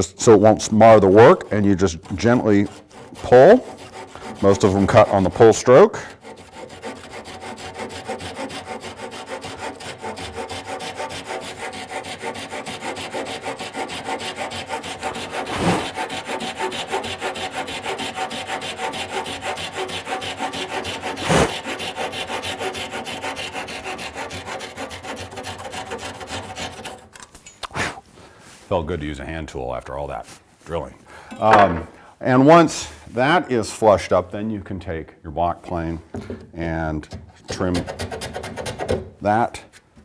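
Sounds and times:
hand saw cutting wood: 0.5 - 27.2, 36.2 - 39.1.

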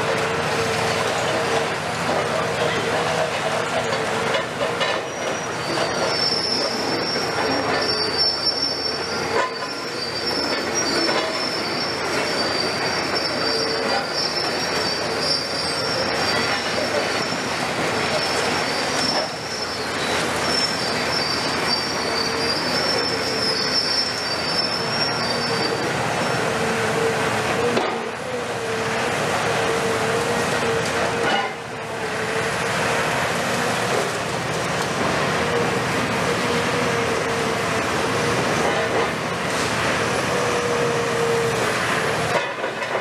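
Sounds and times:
demolition excavator hydraulics: 0.1 - 43.0
high metallic squeal: 4.8 - 26.5.

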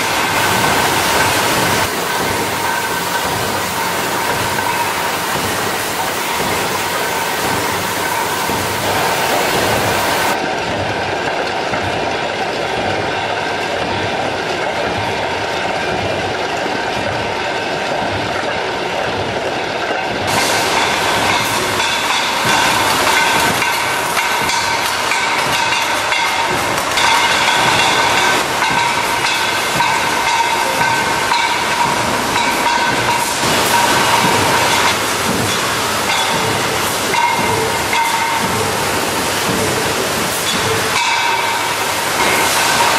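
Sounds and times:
high steady whine: 0.0 - 10.4
machinery clatter and hiss: 0.0 - 42.9.

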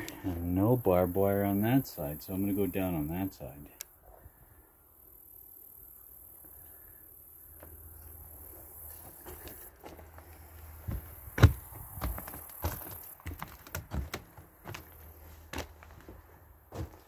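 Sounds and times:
wooden boards creaking and cracking: 9.1 - 16.2
footsteps on wooden floor: 9.3 - 17.0
heavy thud: 10.9 - 14.2.

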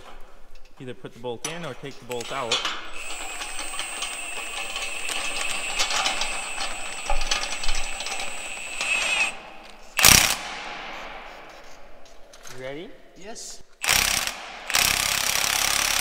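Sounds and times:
rapid clicking: 2.9 - 10.5
cordless drill motor whine: 3.0 - 10.3.

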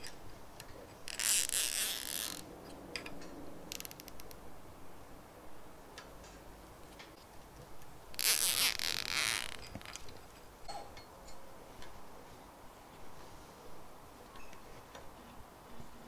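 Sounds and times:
cable tie zipping: 1.1 - 2.4, 8.2 - 10.0.

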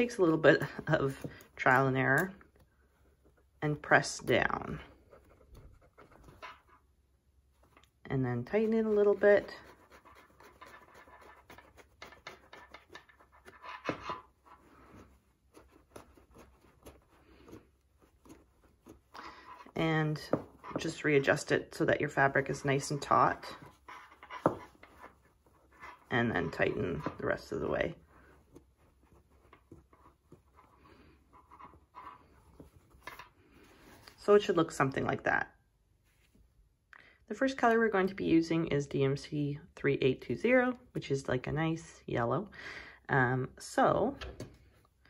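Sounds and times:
soft handling clicks and rustles: 22.1 - 34.5.

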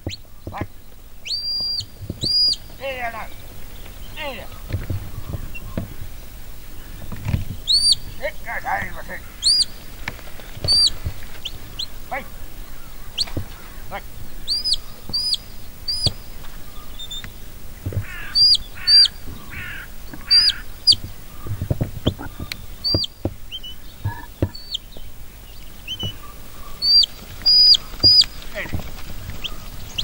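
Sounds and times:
shepherd's whistle notes: 1.3 - 2.6.

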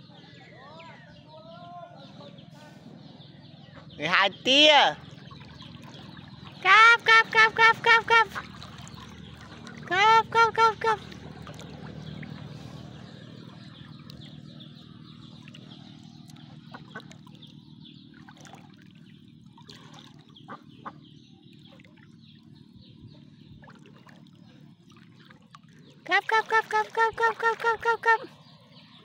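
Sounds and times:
water lapping and dabbling: 3.8 - 29.0
small ticks and splashes: 5.0 - 6.6, 8.3 - 9.9, 11.0 - 22.8, 23.6 - 26.1.

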